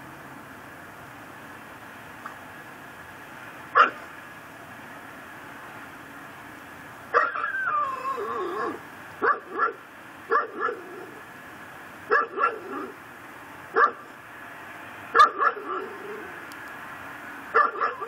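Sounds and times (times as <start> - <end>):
dog barking: 3.8 - 4.1, 7.1 - 11.2, 12.1 - 13.0, 13.7 - 14.1, 15.1 - 16.2, 17.5 - 18.0.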